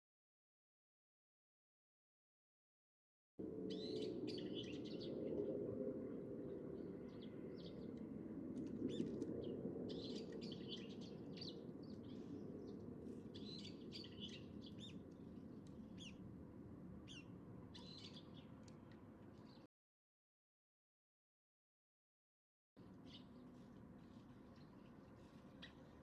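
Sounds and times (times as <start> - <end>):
small birds chirping: 3.7 - 5.4, 8.9 - 16.2, 17.1 - 19.7, 22.9 - 26.0.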